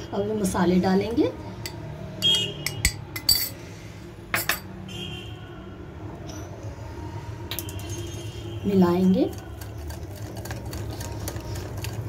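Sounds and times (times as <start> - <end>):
metal utensils clinking on glass bowl: 2.8 - 3.6.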